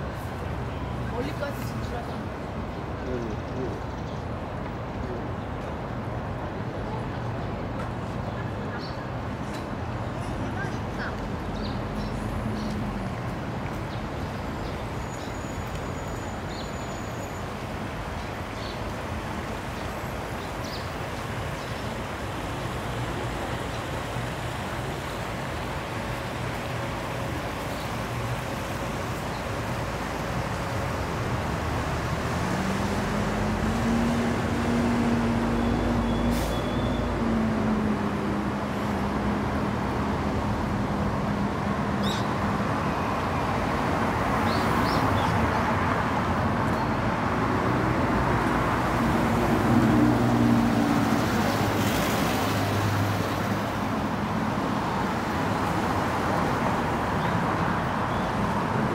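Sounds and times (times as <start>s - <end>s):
passing vehicle engines: 0.0s - 58.9s
road noise hum: 0.0s - 58.9s.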